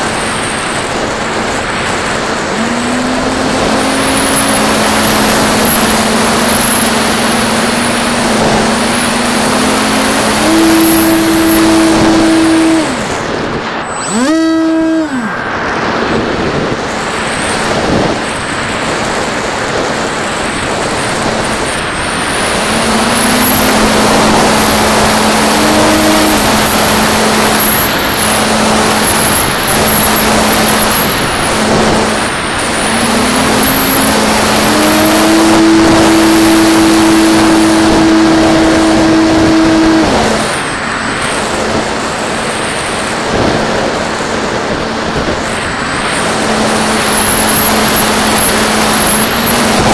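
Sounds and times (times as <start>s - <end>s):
electric motor and propeller buzzing: 0.0s - 49.9s
wind rush on microphone: 0.0s - 49.9s.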